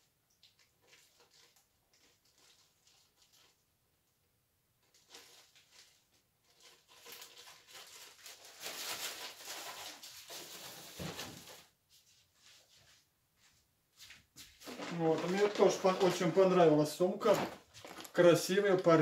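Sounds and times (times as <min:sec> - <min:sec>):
plastic packaging crinkling: 0:04.9 - 0:11.7, 0:14.6 - 0:19.0.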